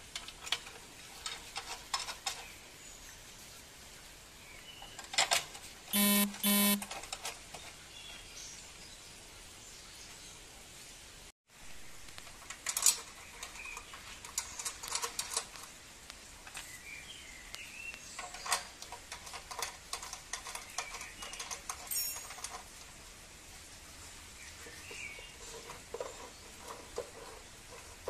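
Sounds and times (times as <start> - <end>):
metal parts clicking and rattling: 0.1 - 2.4, 12.2 - 15.6, 18.2 - 22.8.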